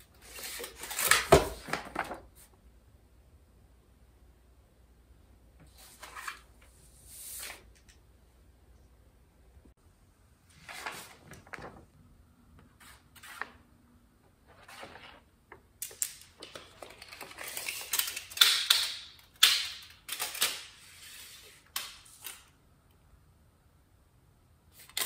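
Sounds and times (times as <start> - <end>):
paper rustling: 10.5 - 11.9, 14.5 - 18.5
tape measure clicking and rattling: 17.1 - 20.8.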